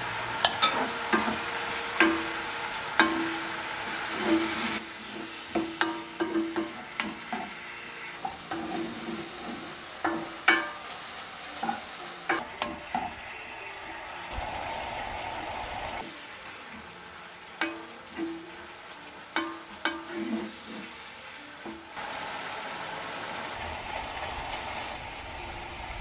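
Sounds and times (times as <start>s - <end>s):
garlic sizzling in glaze: 0.0s - 26.0s
wooden spatula scraping pan: 0.4s - 7.6s, 8.2s - 10.8s, 19.4s - 21.9s.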